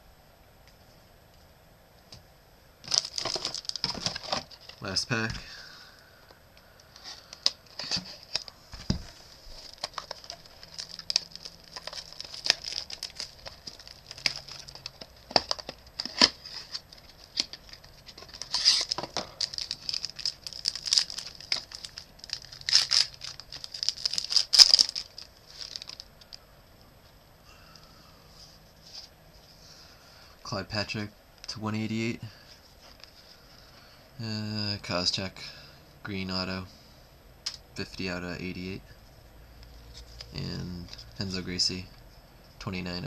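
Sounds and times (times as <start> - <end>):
card pack wrapper tearing: 2.8 - 5.0, 9.6 - 26.1
wrapper crinkling: 2.8 - 5.0, 9.4 - 26.4.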